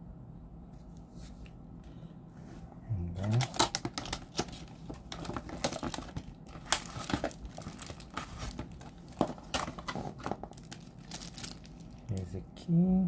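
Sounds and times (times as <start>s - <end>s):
plastic packaging crinkling: 3.2s - 12.3s.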